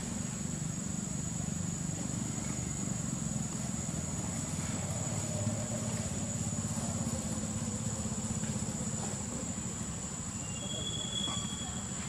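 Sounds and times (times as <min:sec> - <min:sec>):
engine idling: 0:00.0 - 0:12.0
high-pitched insect drone: 0:00.0 - 0:12.0.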